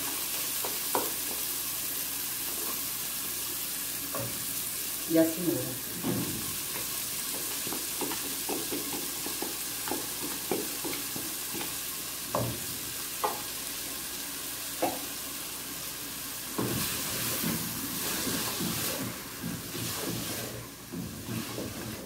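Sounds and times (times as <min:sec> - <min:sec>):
vegetables sizzling in a pan: 0:00.0 - 0:22.0
wooden spoon scraping a pan: 0:16.6 - 0:22.0.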